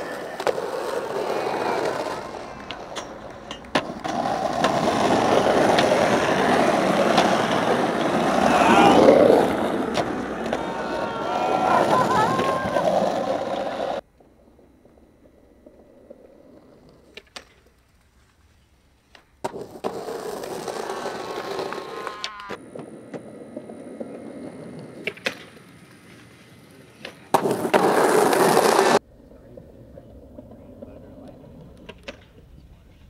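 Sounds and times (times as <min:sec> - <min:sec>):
skateboard grinding metal handrail: 0:00.0 - 0:14.0
skateboard clacks: 0:00.0 - 0:18.2, 0:19.0 - 0:33.0
skateboard wheels rolling on asphalt: 0:00.0 - 0:33.0.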